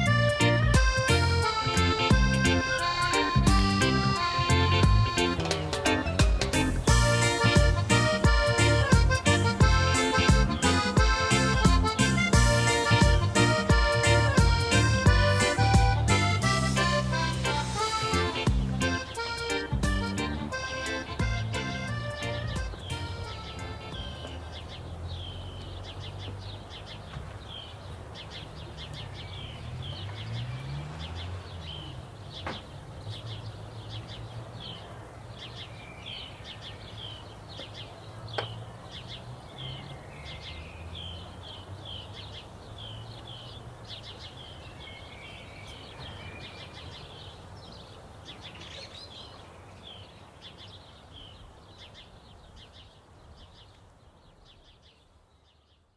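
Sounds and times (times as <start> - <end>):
birds chirping: 0.0 - 55.9.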